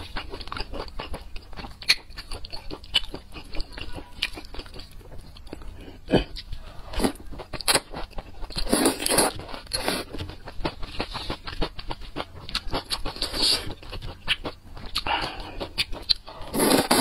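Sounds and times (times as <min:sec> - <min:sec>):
wet noodle slurps: 0:16.4 - 0:17.0.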